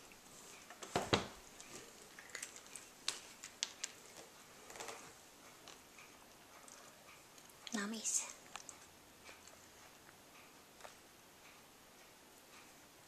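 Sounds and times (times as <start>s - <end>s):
cat crunching dry treats: 1.6s - 5.1s.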